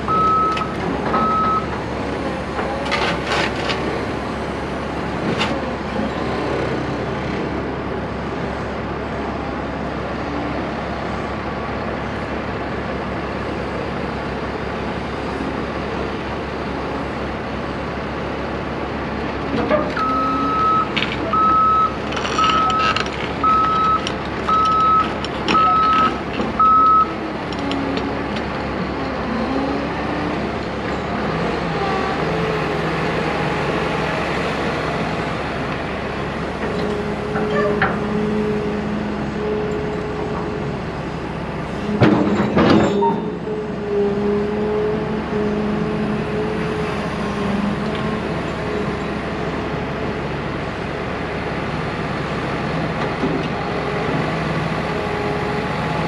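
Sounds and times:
diesel engine running: 0.0s - 56.0s
excavator travel alarm beeping: 0.1s - 1.7s, 20.0s - 27.2s.

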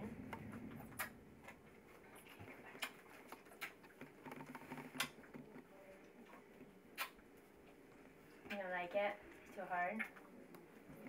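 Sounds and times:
wet clicks and smacks: 7.0s - 7.8s.

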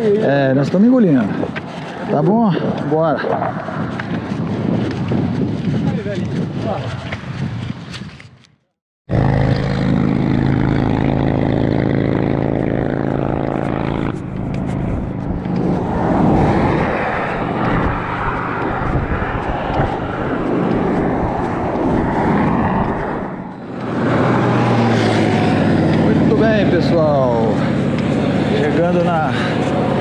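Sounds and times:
uneven rushing noise: 9.1s - 30.0s
vehicle engine running: 9.1s - 30.0s.

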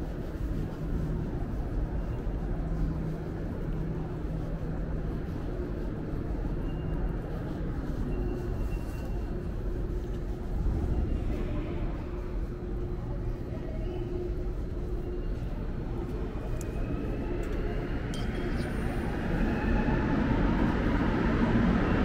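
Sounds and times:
train rumbling: 0.0s - 22.0s.

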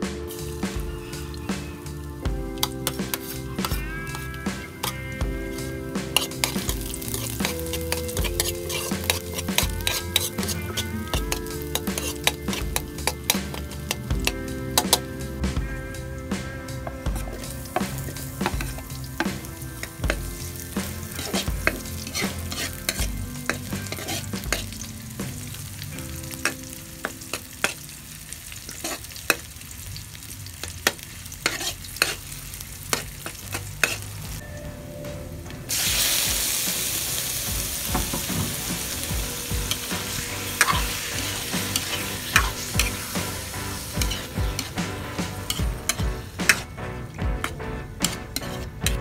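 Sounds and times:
loud sizzle in hot oil: 0.0s - 34.4s, 35.7s - 47.2s, 48.0s - 49.0s
metal spatula scraping wok: 2.6s - 14.0s, 17.2s - 25.8s, 30.8s - 34.4s, 35.7s - 49.0s.

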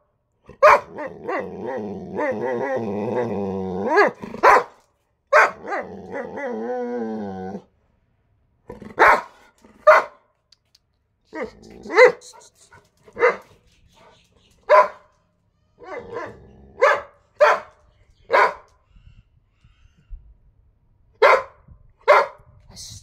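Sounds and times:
dog barking: 0.6s - 1.4s, 3.9s - 5.9s, 8.9s - 10.3s, 11.4s - 12.5s, 13.2s - 13.5s, 14.7s - 15.1s, 15.8s - 18.7s, 21.2s - 22.5s.

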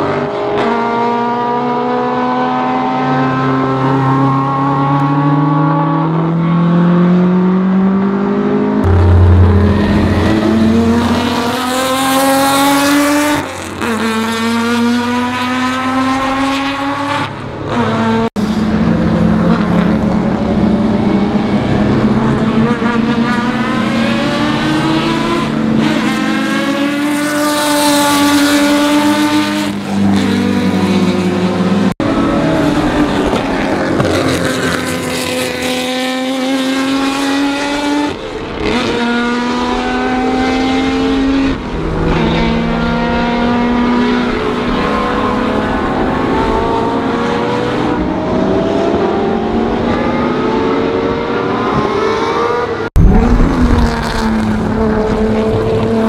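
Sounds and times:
racing car engine revving: 0.0s - 56.0s.

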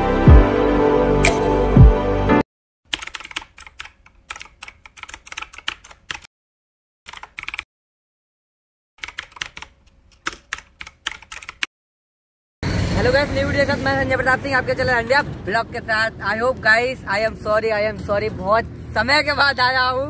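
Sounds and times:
keyboard typing: 2.9s - 6.3s, 7.1s - 7.7s, 9.0s - 11.7s.

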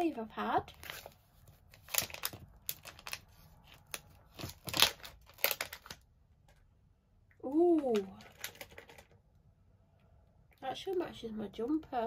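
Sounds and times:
plastic pouch crinkling: 0.6s - 6.1s, 7.8s - 9.2s.

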